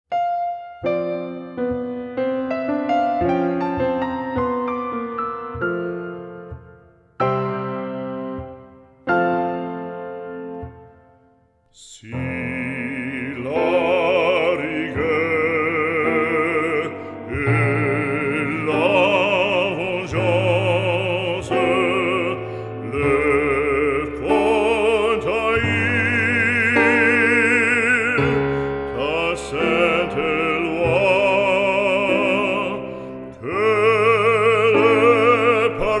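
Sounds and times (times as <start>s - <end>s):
operatic singing: 11.7s - 36.0s.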